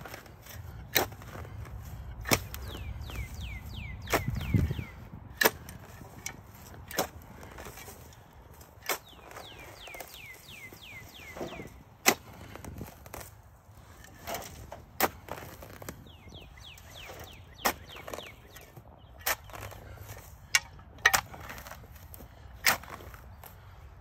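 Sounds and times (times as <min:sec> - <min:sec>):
songbird whistling: 0:02.6 - 0:05.1, 0:09.0 - 0:11.8, 0:16.0 - 0:19.7.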